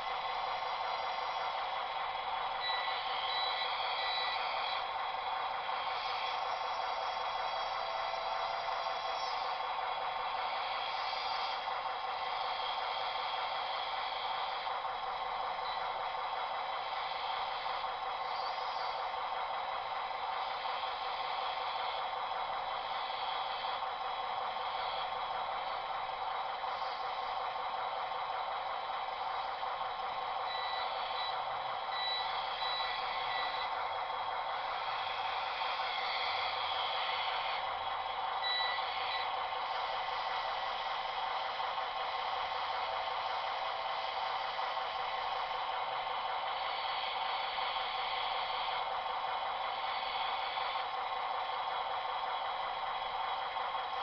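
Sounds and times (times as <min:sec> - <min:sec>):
steady hissing hum: 0:00.0 - 0:54.0.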